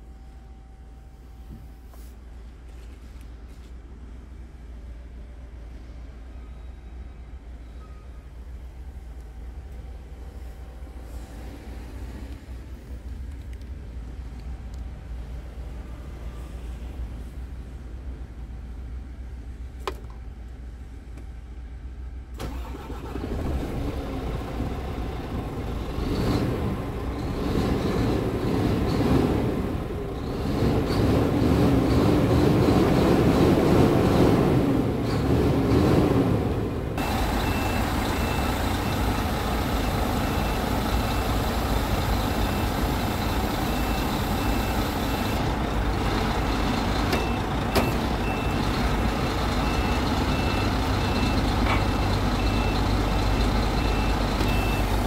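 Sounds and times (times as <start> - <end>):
diesel truck engine running: 22.3 - 55.0
high warning beeps: 37.0 - 45.4, 47.1 - 48.7, 49.6 - 55.0.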